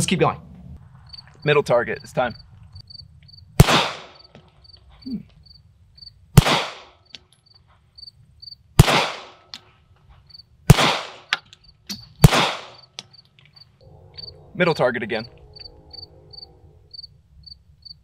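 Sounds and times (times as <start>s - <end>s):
high insect chirping: 0.8s - 6.2s, 7.0s - 8.7s, 10.2s - 10.6s, 11.6s - 11.9s, 12.7s - 18.0s
pistol shots: 3.6s - 4.2s, 6.4s - 7.0s, 8.8s - 9.6s, 10.7s - 11.4s, 12.2s - 13.0s.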